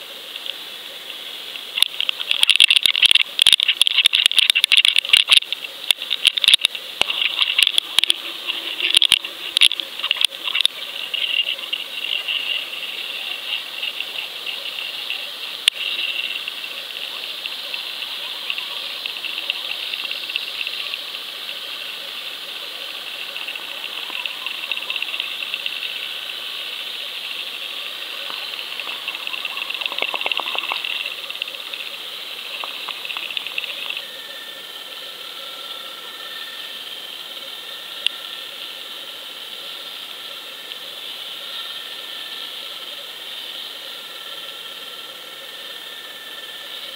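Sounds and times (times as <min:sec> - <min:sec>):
underwater hiss: 0:00.0 - 0:46.9
rapid clicking and rattling: 0:01.8 - 0:12.7.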